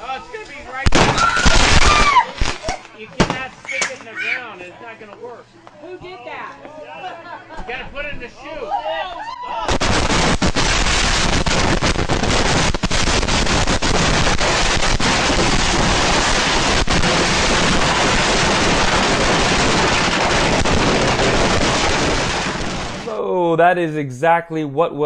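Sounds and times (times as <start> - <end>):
fireworks bangs and crackling: 0.7 - 3.5, 9.7 - 23.1.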